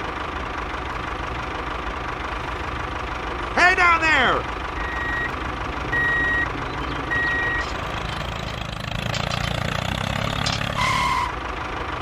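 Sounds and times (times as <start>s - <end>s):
tractor engine running: 0.0s - 12.0s
reversing beep: 4.8s - 5.3s, 5.9s - 6.5s, 7.1s - 7.7s
short beep: 4.8s - 5.3s.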